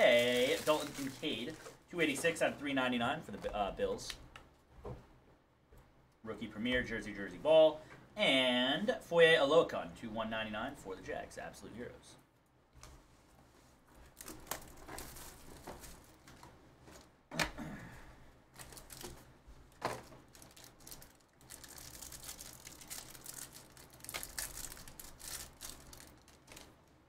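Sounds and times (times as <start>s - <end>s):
plastic card pack tearing and crinkling: 0.0s - 1.8s, 14.1s - 16.2s, 18.6s - 26.9s.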